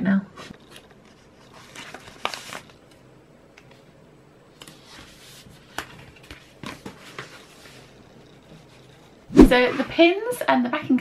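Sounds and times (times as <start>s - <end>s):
paper rustling: 0.7s - 2.8s.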